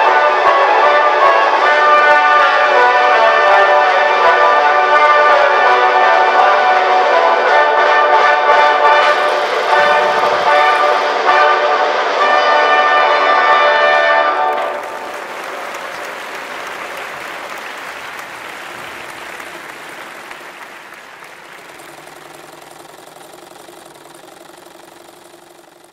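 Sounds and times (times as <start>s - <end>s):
audience applause: 8.8s - 11.4s, 14.2s - 25.9s.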